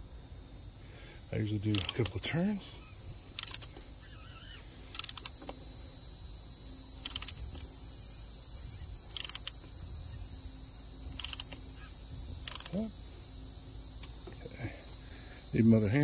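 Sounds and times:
steady high hiss: 0.0s - 16.0s
ratchet clicking: 1.7s - 2.2s, 3.3s - 3.8s, 4.9s - 5.6s, 7.0s - 7.6s, 9.1s - 9.7s, 11.1s - 11.6s, 12.4s - 12.8s.

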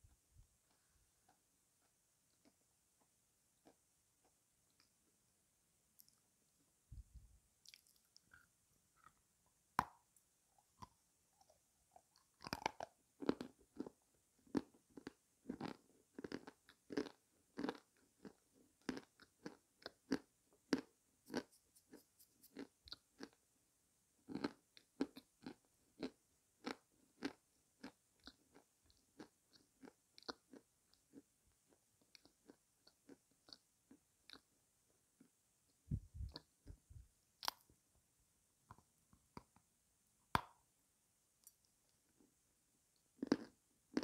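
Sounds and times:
person chewing crunchy food: 7.6s - 9.2s, 10.6s - 23.4s, 24.2s - 34.6s, 43.1s - 44.0s.

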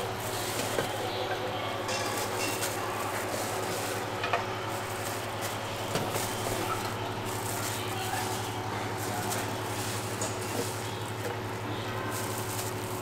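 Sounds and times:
metal pots clinking: 0.0s - 4.6s
griddle frying sizzle: 0.0s - 13.0s.

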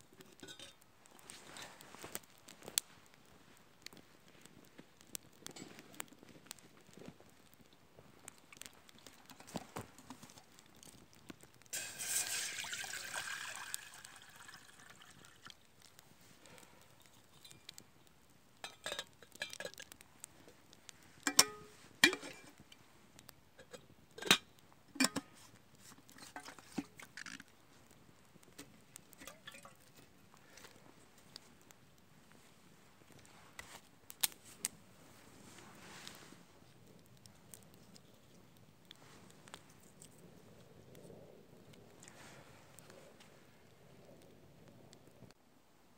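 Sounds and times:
kettle hissing: 11.7s - 17.6s.

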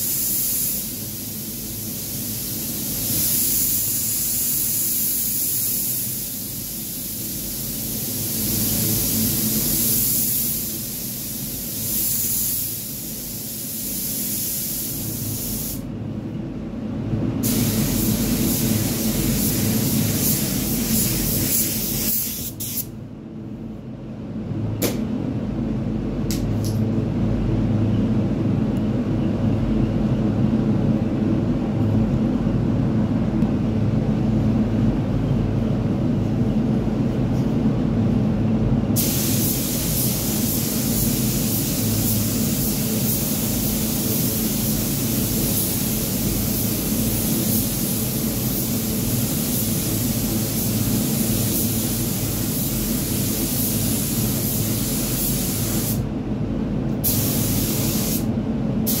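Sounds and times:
spray gun hissing: 0.0s - 15.8s, 17.4s - 22.9s, 39.0s - 56.0s, 57.0s - 58.3s.

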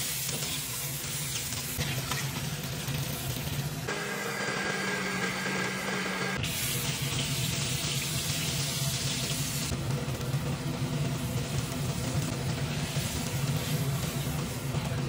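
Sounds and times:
blender motor running: 3.9s - 6.5s.

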